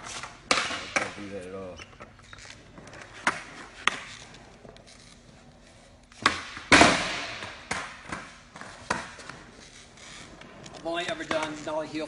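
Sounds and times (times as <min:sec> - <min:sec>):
skateboard clacking: 0:02.7 - 0:04.4, 0:06.2 - 0:09.5, 0:10.4 - 0:12.0
skateboard clattering landing: 0:06.2 - 0:09.2.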